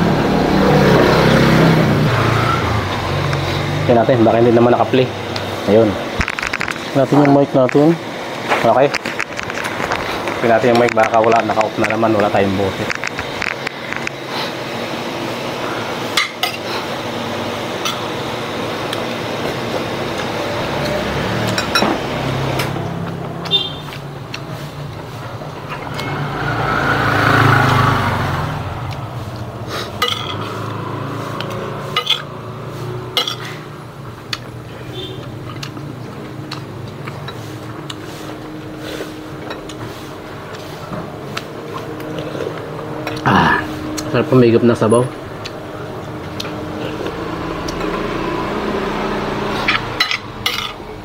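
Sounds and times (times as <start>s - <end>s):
steady background noise: 0.0s - 51.0s
metal spoon clinking on plates: 16.2s - 16.7s, 21.5s - 22.0s, 30.0s - 30.6s, 31.9s - 32.3s, 33.1s - 33.6s, 49.7s - 50.8s.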